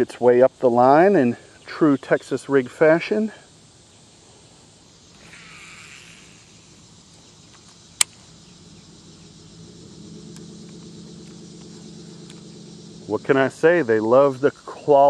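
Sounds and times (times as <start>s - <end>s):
insects chirring: 0.0s - 15.0s
steady low hum: 3.5s - 15.0s
sharp click: 7.5s - 8.2s.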